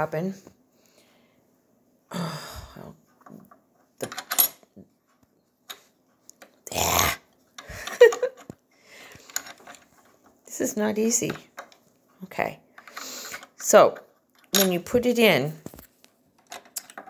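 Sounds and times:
small metal clicks and rattles: 16.4s - 17.0s.

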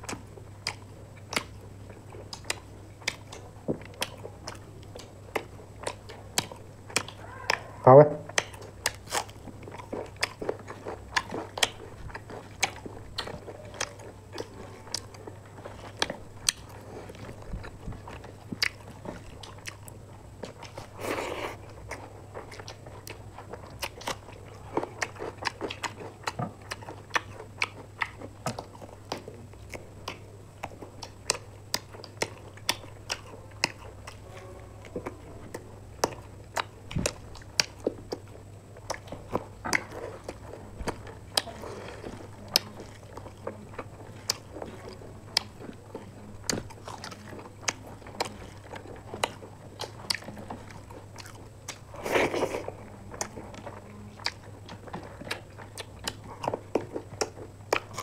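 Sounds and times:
mouth clicks and smacks: 0.0s - 15.2s
steady low hum: 0.0s - 58.0s
wet chewing: 0.0s - 58.0s.

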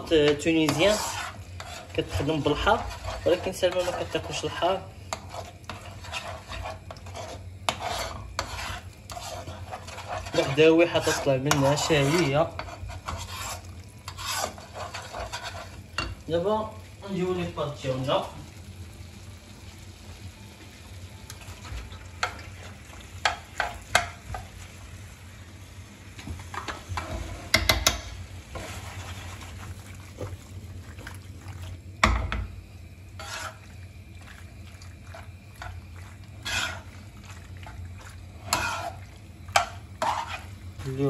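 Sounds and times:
metal spoon scraping a pan: 0.0s - 16.2s, 26.5s - 30.4s, 33.2s - 33.8s, 35.0s - 40.6s.

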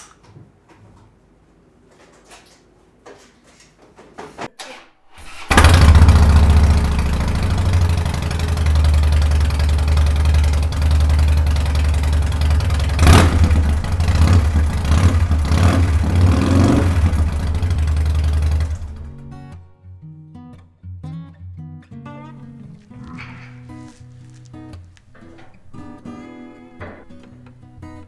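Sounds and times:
motorcycle engine cranking: 4.6s - 19.5s
motorcycle engine revving: 5.2s - 19.3s
motorcycle engine idling: 5.5s - 19.3s.

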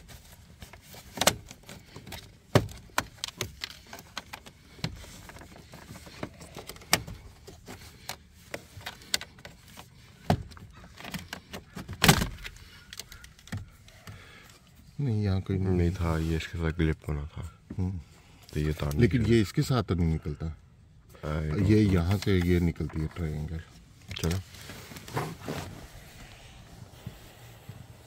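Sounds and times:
plastic dashboard trim rattling: 0.0s - 14.1s.

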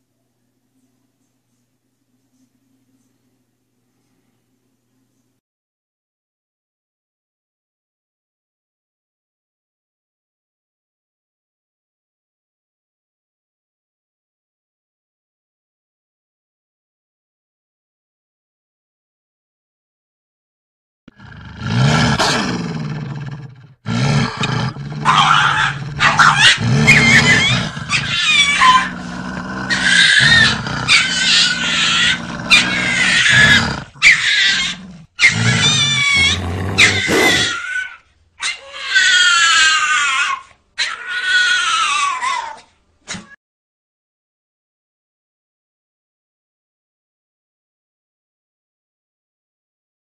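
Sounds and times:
deep growling: 21.1s - 37.6s
dog yelping and screaming: 25.0s - 43.4s.

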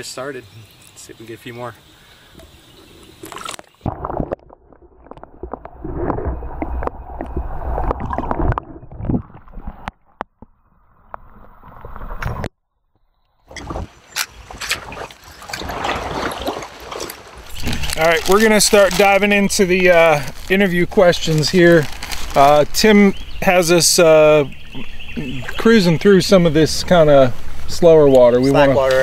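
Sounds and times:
water splashing against kayak hull: 2.3s - 12.5s, 13.5s - 20.6s
rustling: 13.6s - 23.2s.

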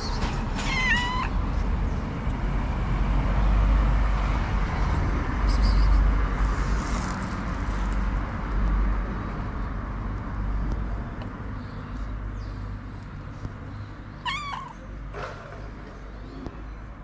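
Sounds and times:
cat meowing: 0.6s - 1.4s, 14.2s - 14.9s.

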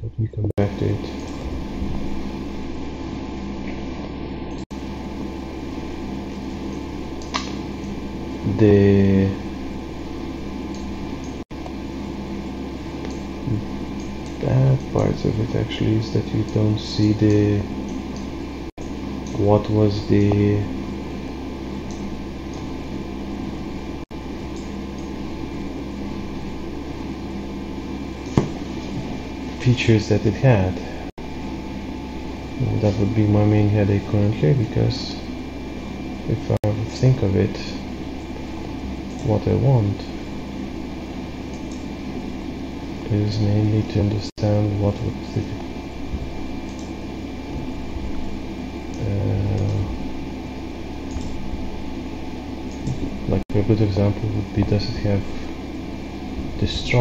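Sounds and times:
droning machine hum and hiss: 0.0s - 57.0s
steady low tones: 0.0s - 57.0s
sharp click: 6.7s - 7.6s.

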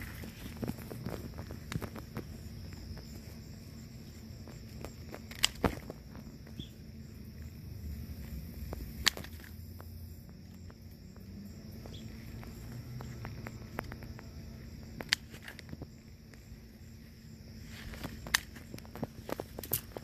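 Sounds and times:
scissors snipping stems: 8.6s - 9.6s.

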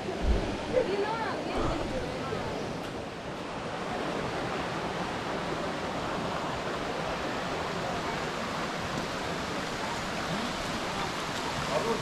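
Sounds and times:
small waterfall: 0.0s - 12.0s
stream rushing over stones: 0.0s - 12.0s.

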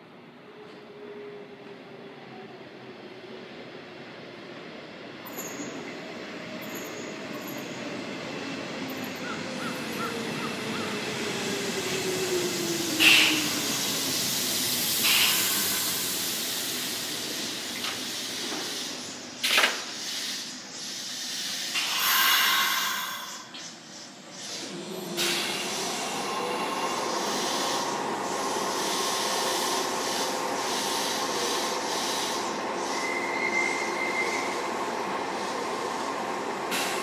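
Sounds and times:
electric train slowing: 0.1s - 37.0s
air brake hisses: 12.6s - 26.4s, 27.0s - 34.4s, 36.7s - 37.0s.

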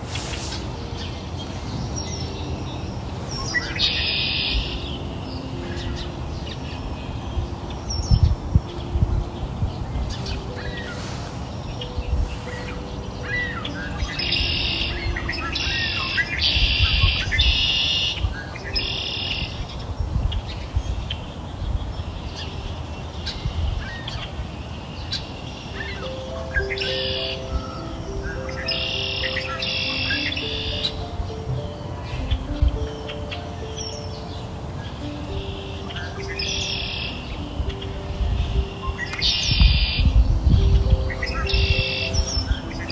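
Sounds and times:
birds chirping and calling: 0.0s - 42.9s
rapid high bird trills: 0.1s - 6.8s, 10.1s - 19.8s.

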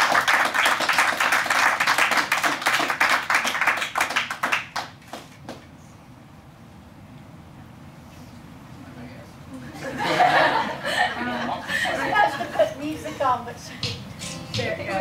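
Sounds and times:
crowd applauding: 0.0s - 5.4s.

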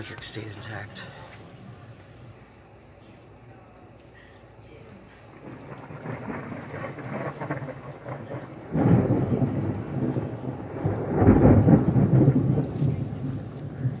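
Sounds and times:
steady rain: 0.0s - 14.0s
thunder rumbling: 5.2s - 14.0s.

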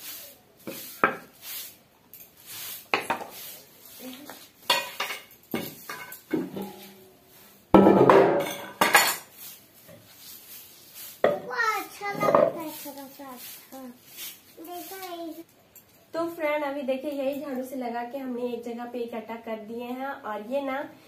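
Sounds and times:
broom swishing on concrete: 0.0s - 7.8s, 8.4s - 15.5s
metal basin scraping on concrete: 4.7s - 11.4s.

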